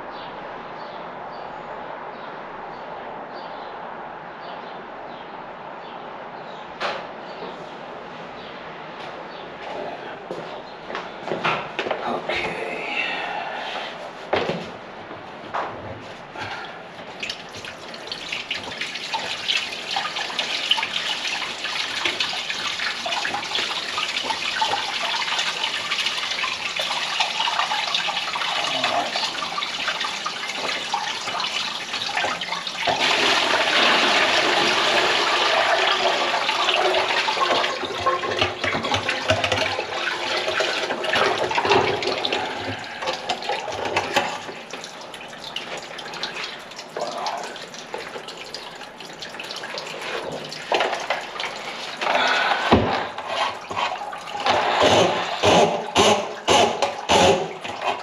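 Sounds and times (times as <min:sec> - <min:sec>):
water splashing into a bucket: 0:16.4 - 0:58.0.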